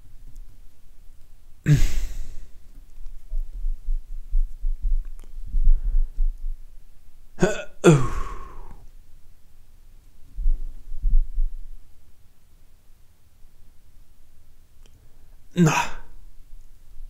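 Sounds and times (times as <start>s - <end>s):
faint low rumbling: 0.0s - 12.5s.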